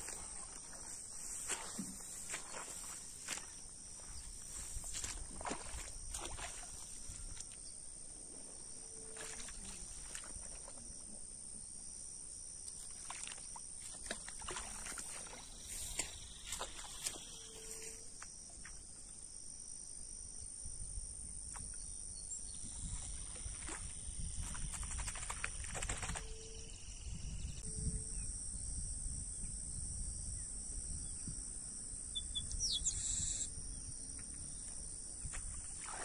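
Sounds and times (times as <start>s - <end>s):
rustles and clicks in grass: 0.0s - 7.7s, 12.7s - 18.8s, 22.9s - 26.5s.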